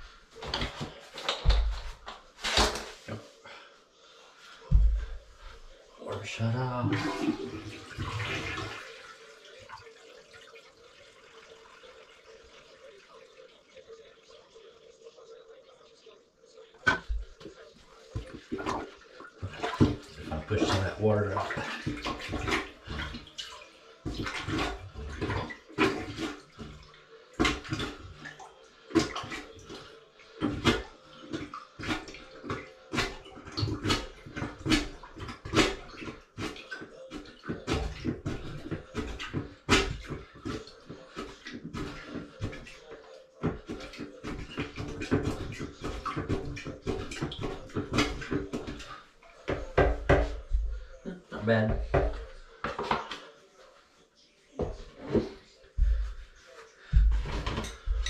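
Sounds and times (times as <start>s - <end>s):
water trickling and dripping: 4.1s - 58.0s
toilet water rushing: 6.0s - 14.9s, 16.8s - 50.6s.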